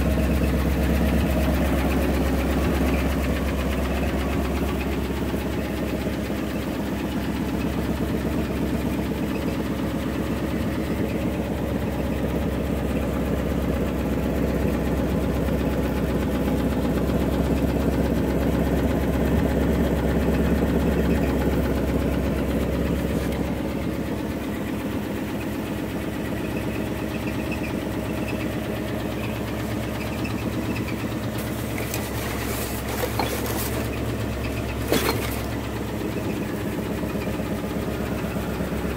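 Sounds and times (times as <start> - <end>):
truck engine idling: 0.0 - 38.9.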